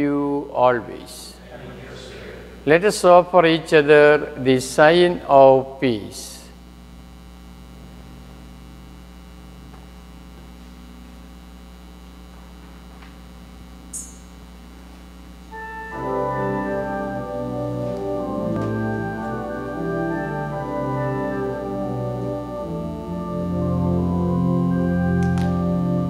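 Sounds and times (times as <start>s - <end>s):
organ playing sustained chords: 0.0s - 12.9s, 14.0s - 26.0s
low hum: 6.4s - 26.0s.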